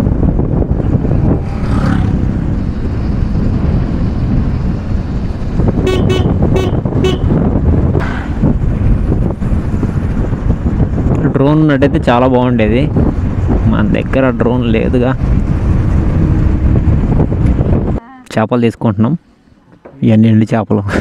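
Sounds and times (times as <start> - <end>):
motorcycle running: 0.0 - 18.0
wind rushing over microphone: 0.0 - 18.0
horn tooting: 5.8 - 7.4.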